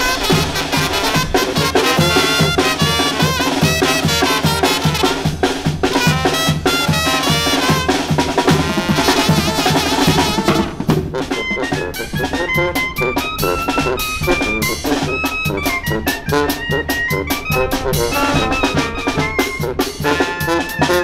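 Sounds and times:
bass drum and cymbal beat: 0.0 - 11.2
brass band tune: 0.0 - 21.0
snare drums: 0.0 - 21.0.

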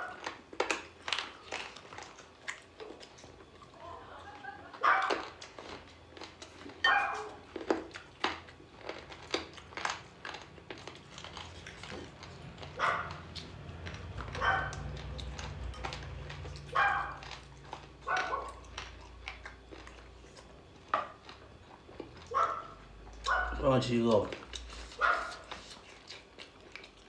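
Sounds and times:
low hum: 10.6 - 23.6.

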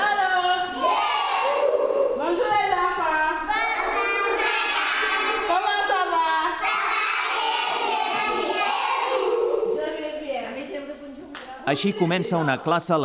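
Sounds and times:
children singing in chorus: 0.7 - 2.2, 3.5 - 5.5, 6.6 - 9.8.

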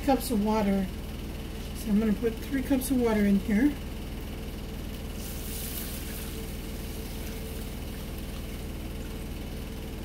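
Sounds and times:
motor humming: 0.1 - 10.0.

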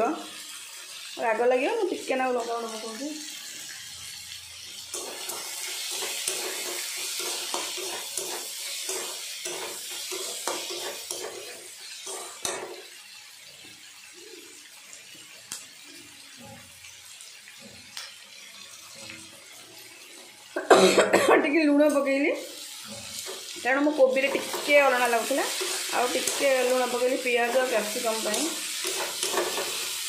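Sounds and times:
vegetables sizzling in oil: 0.0 - 30.0
metal spatula scraping pan: 4.9 - 12.9, 22.6 - 30.0.

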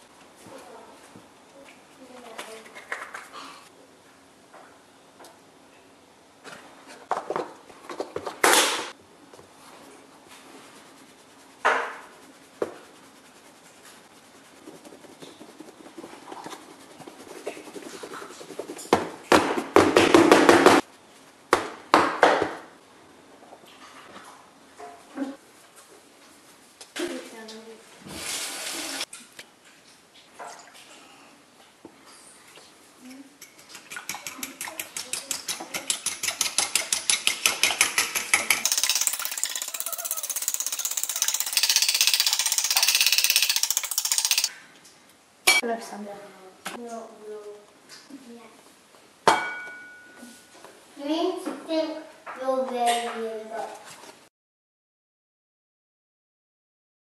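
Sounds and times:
fork whisking in ceramic bowl: 10.3 - 19.0, 33.4 - 44.5
plastic container being shaken: 12.8 - 18.9, 38.6 - 44.5.

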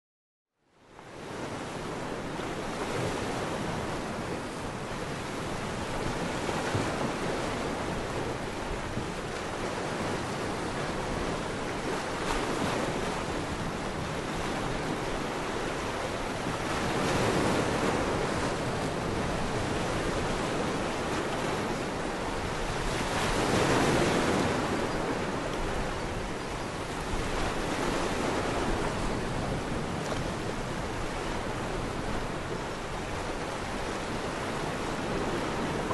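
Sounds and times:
surf rushing: 27.8 - 35.9.

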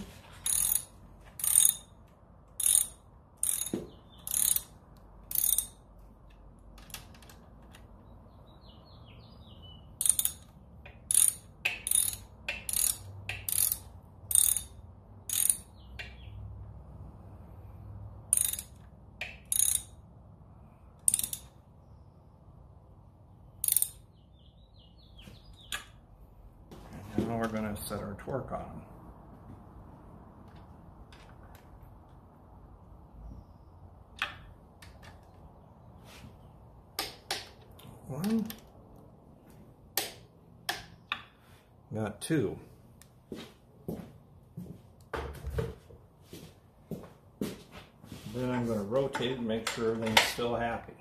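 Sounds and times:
hand ratchet clicking: 0.4 - 1.9, 2.5 - 5.8, 10.0 - 16.2, 18.3 - 20.0, 21.0 - 21.6, 23.6 - 24.0.

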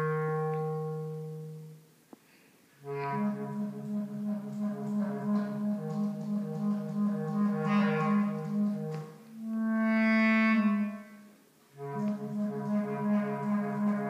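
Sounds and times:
bass clarinet playing low notes: 0.0 - 1.8, 2.8 - 14.0.

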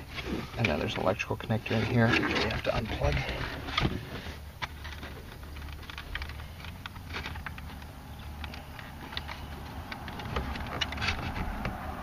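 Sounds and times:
low steady hum: 0.0 - 12.0
plastic clicks and scrapes: 1.7 - 11.9.

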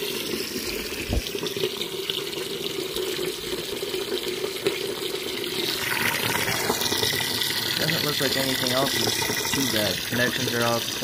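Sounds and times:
water running out of a hose: 0.0 - 11.0.

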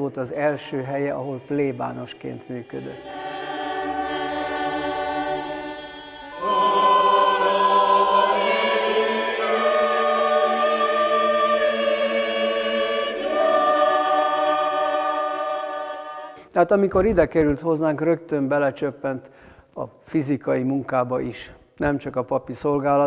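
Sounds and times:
mixed choir singing chords: 0.2 - 16.5.

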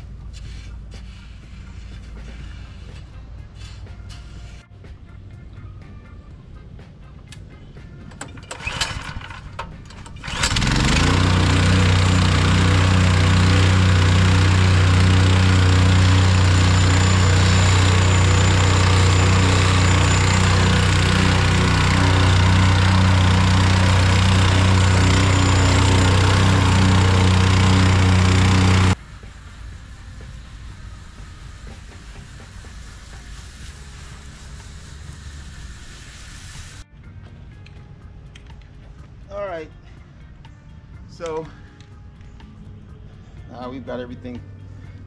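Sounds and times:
plate tamping sand: 0.2 - 4.7, 11.1 - 29.0
pull-start cord rattling tugs: 8.1 - 29.0
plate compactor engine running: 8.2 - 31.1.

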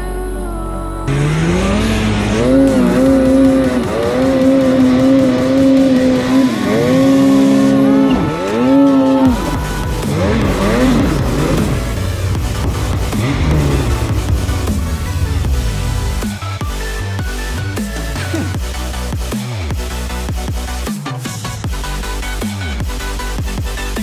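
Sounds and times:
snowmobile engine revving: 1.1 - 24.0.

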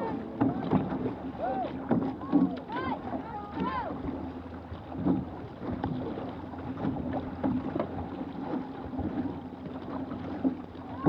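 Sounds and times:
paddles splashing: 0.0 - 11.0
water rushing along hull: 0.0 - 11.0.

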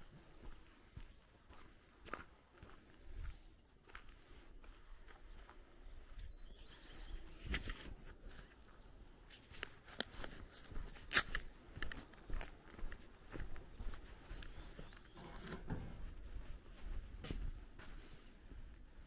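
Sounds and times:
footsteps crunching on gravel: 9.3 - 14.9.

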